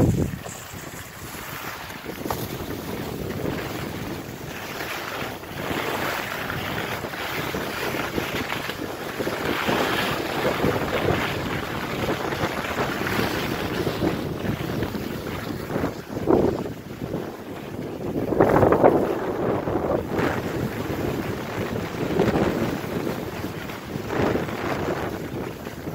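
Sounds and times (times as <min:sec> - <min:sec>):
skis hissing and scraping snow: 0:00.0 - 0:10.0
wind rushing over microphone: 0:00.0 - 0:25.9.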